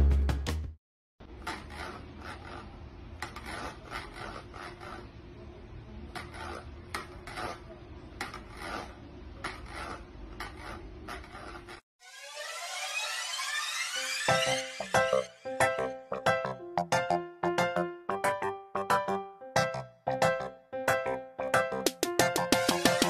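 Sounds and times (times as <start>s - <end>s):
cat scraping in plastic bowl: 1.3s - 5.2s, 6.1s - 11.8s.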